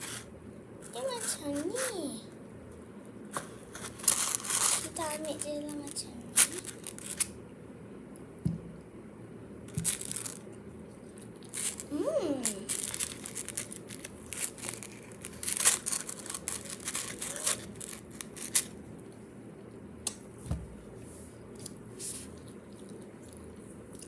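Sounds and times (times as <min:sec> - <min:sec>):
plastic packaging crinkling: 0:03.7 - 0:07.3, 0:09.7 - 0:10.5, 0:11.1 - 0:18.8
dull thump: 0:08.4 - 0:08.7.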